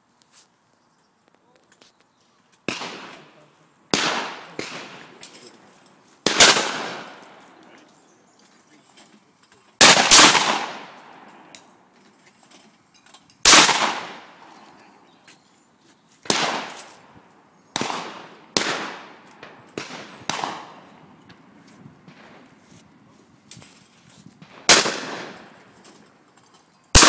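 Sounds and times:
shotgun shots echoing: 2.6 - 5.6, 6.2 - 7.8, 9.8 - 11.6, 13.4 - 14.6, 16.3 - 17.0, 17.7 - 21.0, 24.4 - 25.7.

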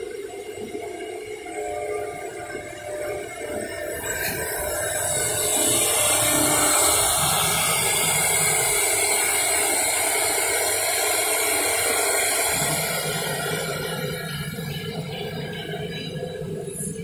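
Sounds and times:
router spindle cutting wood: 4.0 - 14.1.

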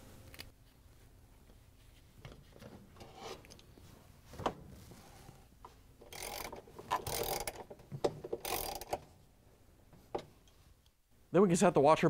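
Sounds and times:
ratchet clicking: 6.0 - 9.1.

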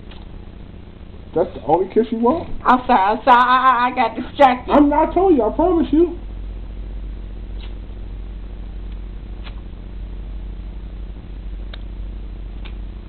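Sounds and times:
steady low hum: 0.0 - 13.0
faint lip smacks: 7.5 - 7.8, 8.9 - 9.7.

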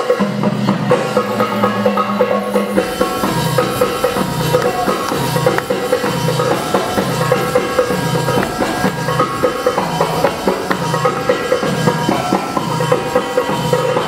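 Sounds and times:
repeating drum beat: 0.1 - 14.0
sustained tones: 1.1 - 14.0.

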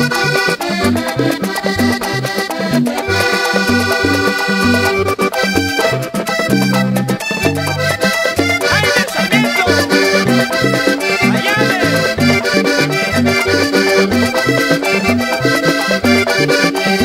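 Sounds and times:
button accordion: 0.0 - 17.0.

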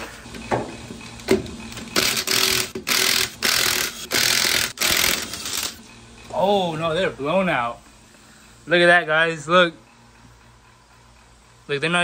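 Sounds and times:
impact wrench hammering: 1.3 - 5.8.

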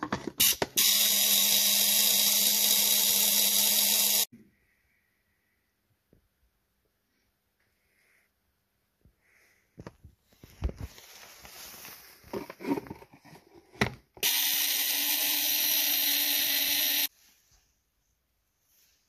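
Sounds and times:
handling knocks and clicks: 0.0 - 0.8
coil buzzing: 14.2 - 17.1.

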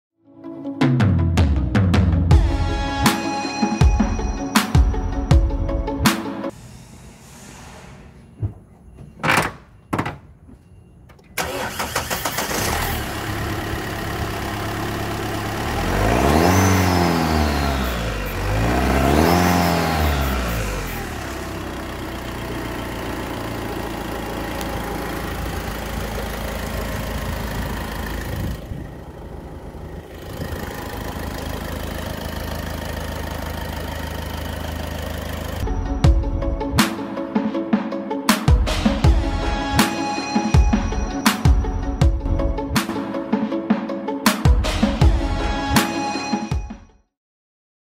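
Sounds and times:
diesel engine starting and revving: 11.2 - 36.9.

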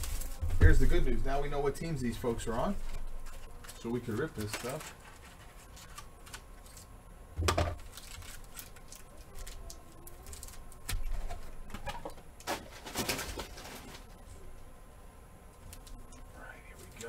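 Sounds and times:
sharp wrapper crackles: 0.0 - 0.9, 2.1 - 6.9, 7.8 - 11.6
foil wrappers crinkling: 0.0 - 6.9, 7.8 - 14.2.

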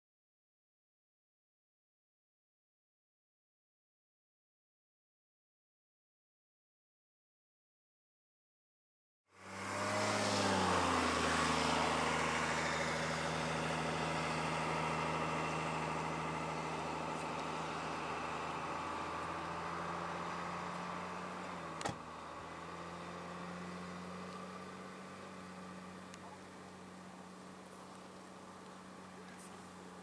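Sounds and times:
vehicle engine idling: 9.4 - 30.0
sharp click: 21.8 - 22.0.

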